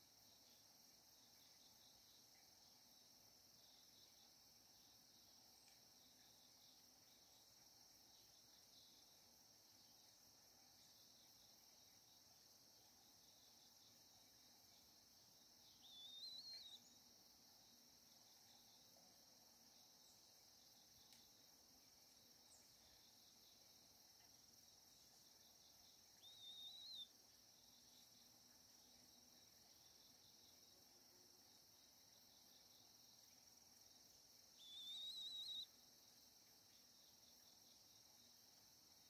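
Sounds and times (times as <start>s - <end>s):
crickets chirping: 0.0s - 39.0s
short wavering calls: 15.8s - 16.8s, 26.2s - 27.1s, 34.6s - 35.7s.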